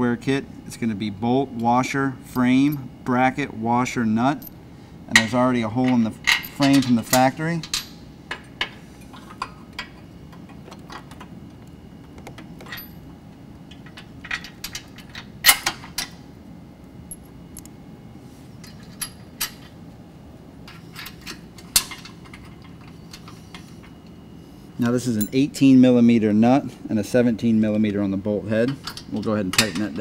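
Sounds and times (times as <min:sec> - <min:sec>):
metal parts clinking: 0:12.6 - 0:13.1, 0:13.7 - 0:16.1, 0:18.6 - 0:19.7.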